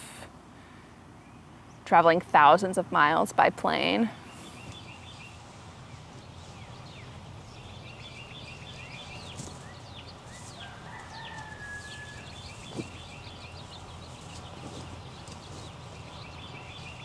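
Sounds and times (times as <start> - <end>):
small birds chirping: 1.0 - 1.9, 3.8 - 17.0
rooster crowing: 10.3 - 12.9.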